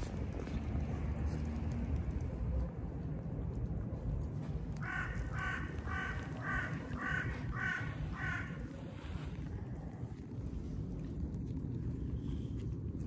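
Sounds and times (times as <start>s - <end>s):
low background rumble: 0.0s - 13.0s
crow cawing: 4.8s - 8.7s.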